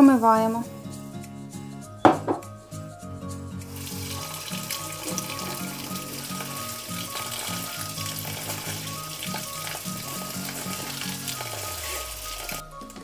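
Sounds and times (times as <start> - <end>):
soft background music: 0.0 - 13.0
tap water pouring through sieve: 3.7 - 12.6.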